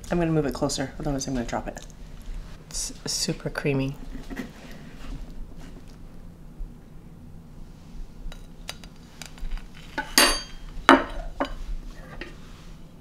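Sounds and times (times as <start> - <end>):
metal cutlery clinking on ceramic plate: 10.0 - 11.2.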